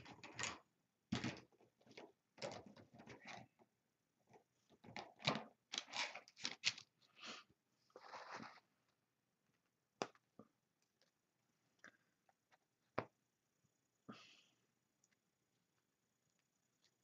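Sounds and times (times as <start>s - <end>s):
paintbrush strokes: 7.9s - 8.7s.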